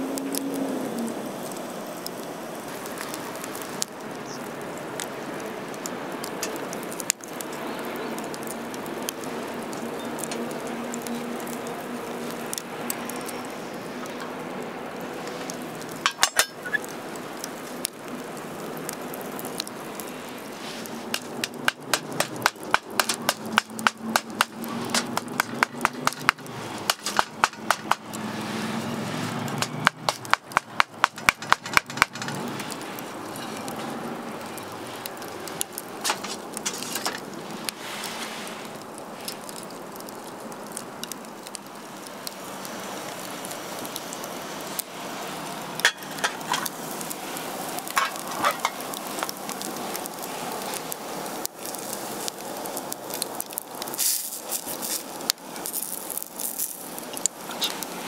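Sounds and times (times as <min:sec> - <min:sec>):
food sizzling in a pan: 0:00.0 - 0:58.0
clicks and scrapes: 0:20.6 - 0:28.2, 0:29.6 - 0:33.9, 0:36.0 - 0:39.4
rapid sharp knocks: 0:21.1 - 0:28.1, 0:29.6 - 0:32.4.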